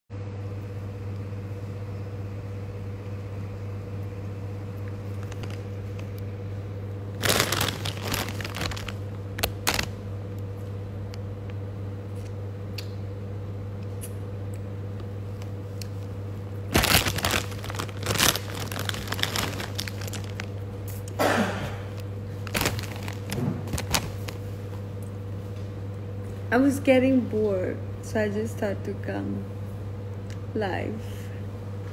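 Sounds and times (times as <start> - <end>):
low electrical hum: 0.1 - 31.9
plastic snack bag crinkling: 5.1 - 6.2, 7.1 - 10.1, 16.7 - 21.1, 21.9 - 24.5
crunching snack: 7.2 - 10.0, 16.7 - 21.2, 22.4 - 24.4.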